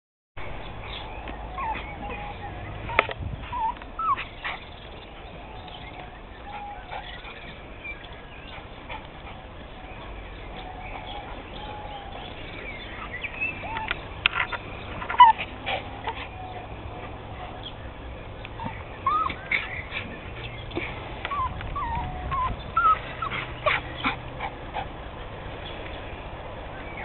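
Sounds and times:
small dog whimpering: 0:01.5 - 0:04.6, 0:15.1 - 0:15.4, 0:19.0 - 0:19.7, 0:21.3 - 0:24.5.

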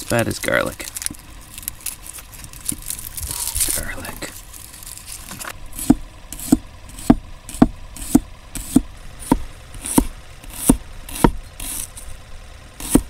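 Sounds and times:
knife chopping on cutting board: 0:05.8 - 0:11.8.

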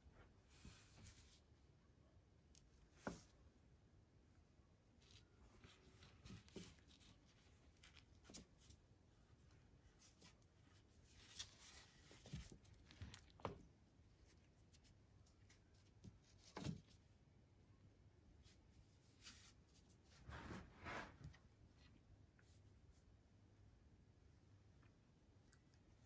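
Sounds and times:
handling rustles and soft knocks: 0:00.0 - 0:01.8, 0:02.4 - 0:03.8, 0:04.7 - 0:17.4.

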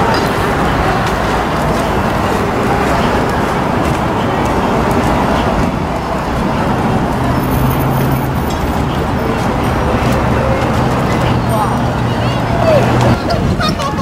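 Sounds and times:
bus engine and road rumble: 0:00.0 - 0:14.0.

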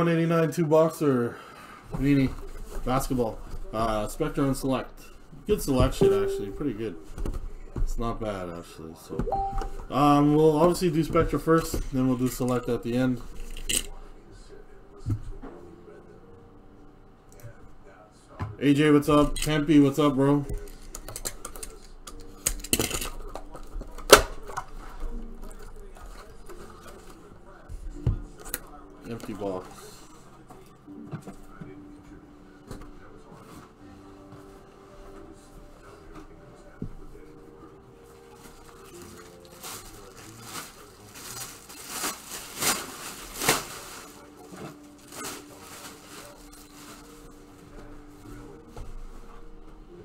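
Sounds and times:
faint music: 0:00.0 - 0:50.0
plastic wrap crinkling: 0:38.3 - 0:47.5.

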